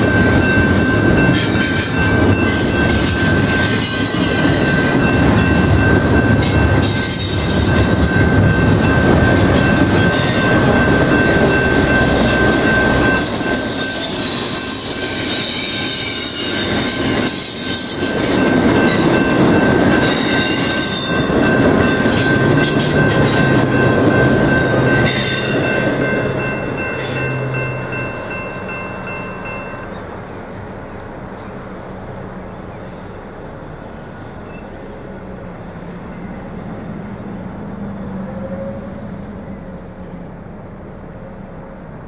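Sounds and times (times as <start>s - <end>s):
high-pitched wheel squeal: 0.0s - 5.6s, 11.7s - 19.2s, 37.1s - 40.5s
train wheel rumble and rattle: 0.0s - 42.0s.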